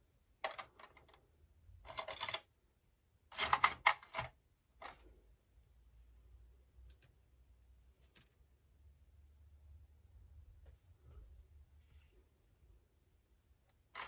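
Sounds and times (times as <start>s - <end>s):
plastic pens clicking and clattering: 0.4s - 2.5s, 3.3s - 5.0s.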